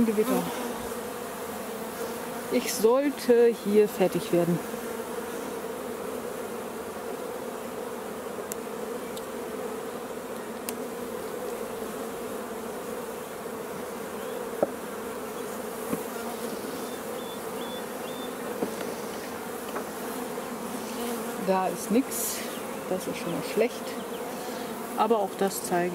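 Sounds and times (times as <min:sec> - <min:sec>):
bees humming: 0:00.0 - 0:25.9
hive tool clicks on wooden frames: 0:08.5 - 0:09.4, 0:10.3 - 0:10.9, 0:14.6 - 0:14.8, 0:15.8 - 0:16.1.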